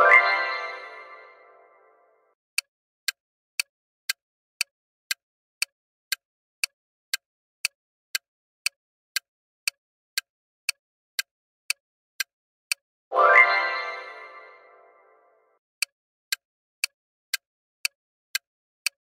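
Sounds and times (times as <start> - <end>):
timer ticking: 2.6 - 12.8.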